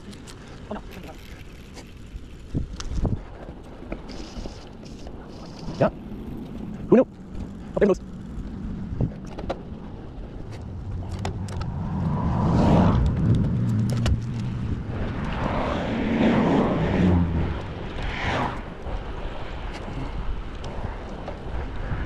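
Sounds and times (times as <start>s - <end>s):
cars passing: 5.6s - 22.0s.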